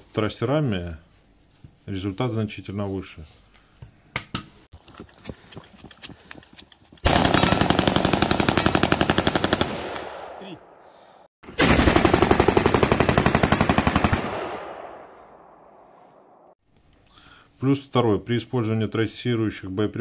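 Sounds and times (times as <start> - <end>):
automatic rifle bursts: 7.1 - 10.2
gunfire echo: 7.1 - 12.5, 13.3 - 16.5.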